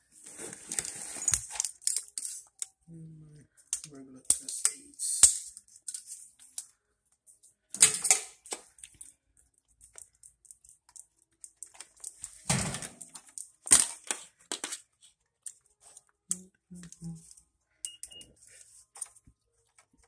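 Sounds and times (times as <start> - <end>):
plastic clicks and clatter: 7.7 - 14.8.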